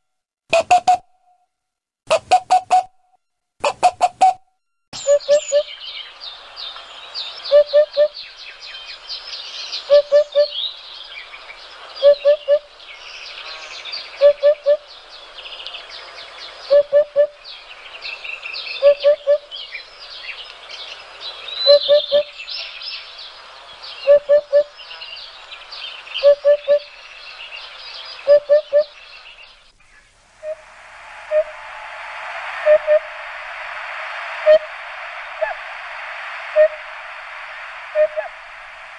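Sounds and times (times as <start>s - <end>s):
small birds chirping: 5.0s - 30.6s
low bird call: 5.0s - 38.9s
steady hiss: 5.0s - 38.9s.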